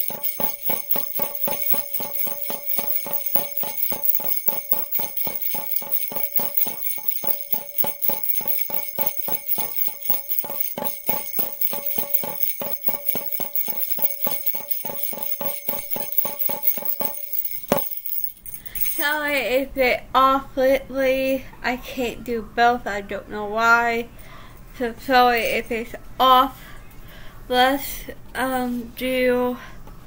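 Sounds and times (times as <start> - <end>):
jingle bells shaken: 0.0 - 19.4, 25.2 - 25.7.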